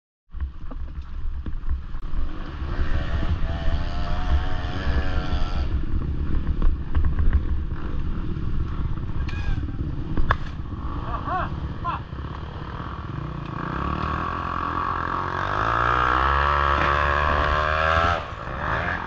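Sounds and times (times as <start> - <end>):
steady low rumble: 0.4 - 15.2
motocross bike engine revving: 2.1 - 6.5, 7.6 - 19.0.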